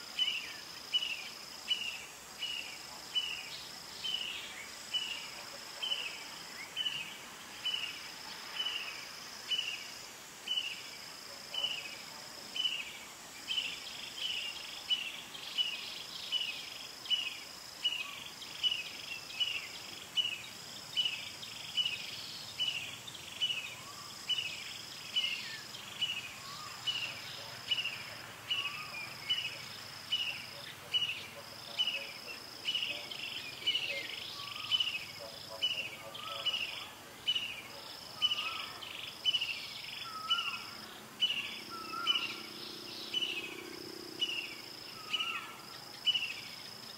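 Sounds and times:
shrill insect trill: 0:00.0 - 0:46.9
short high insect chirp: 0:12.6 - 0:46.9.

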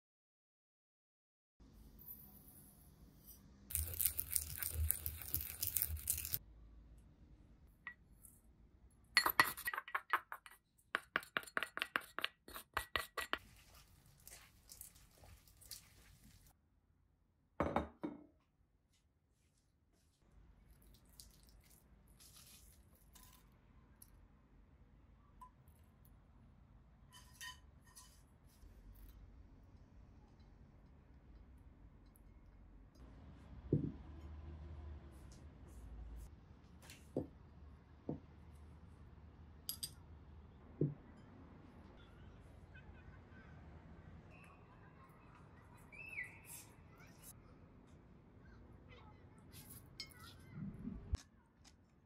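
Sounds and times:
utensils clinking on metal bowl: 0:09.2 - 0:13.4
rustling: 0:13.4 - 0:16.5.

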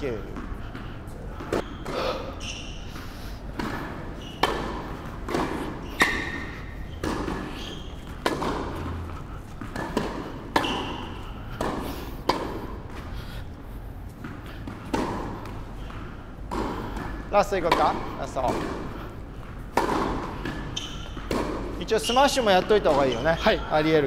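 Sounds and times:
tennis balls bouncing on court: 0:00.0 - 0:24.0
tennis balls struck with rackets: 0:01.4 - 0:13.2, 0:14.0 - 0:24.0.

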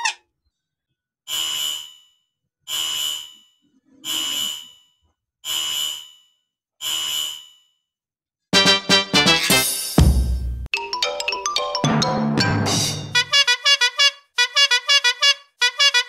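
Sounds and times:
alarm buzzer bursts: 0:01.3 - 0:03.4, 0:04.0 - 0:04.8, 0:05.4 - 0:06.2, 0:06.8 - 0:07.7, 0:13.1 - 0:16.0.

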